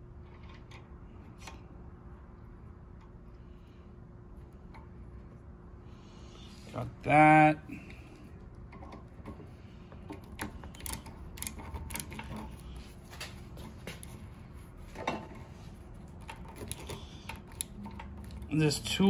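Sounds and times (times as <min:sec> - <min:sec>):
metal tool clicking and scraping: 0:10.1 - 0:12.8, 0:16.1 - 0:18.6.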